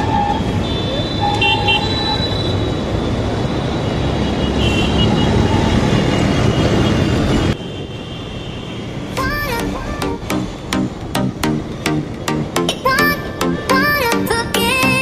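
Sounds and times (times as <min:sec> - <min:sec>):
dense road traffic: 0:00.0 - 0:15.0
engines and road noise rumble: 0:00.0 - 0:15.0
background music: 0:09.1 - 0:15.0.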